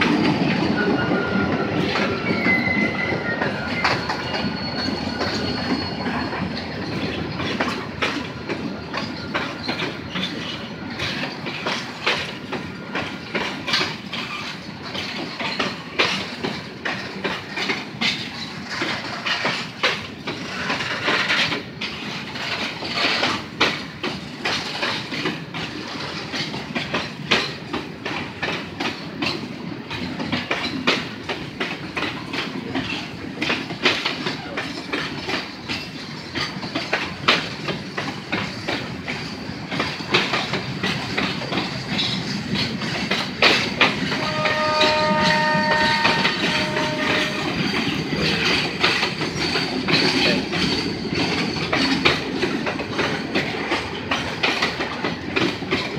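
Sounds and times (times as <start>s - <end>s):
train wheels clattering over rail joints: 0.0s - 55.9s
train horn: 44.1s - 47.8s.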